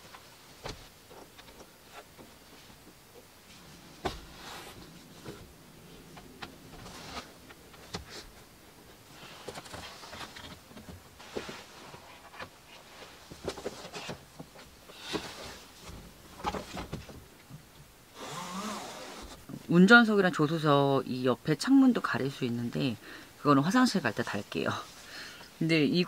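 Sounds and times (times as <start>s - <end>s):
padded panels rustling: 0.0s - 17.4s.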